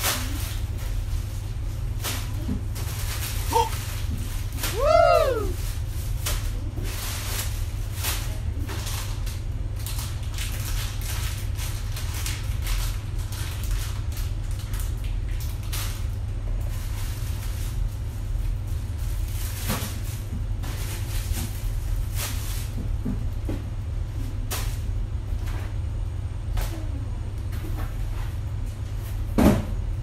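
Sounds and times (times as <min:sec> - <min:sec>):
plastic packaging crinkling: 0:08.8 - 0:16.0.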